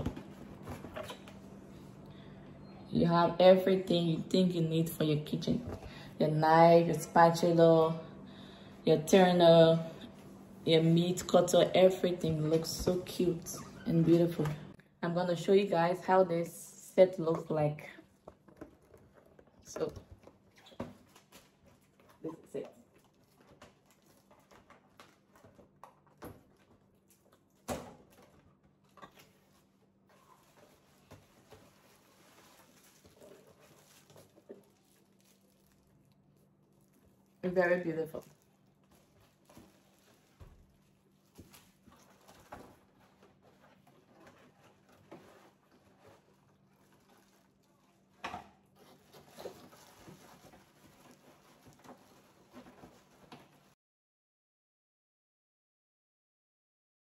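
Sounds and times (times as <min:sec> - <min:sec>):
packaging rustling: 0:18.1 - 0:53.7.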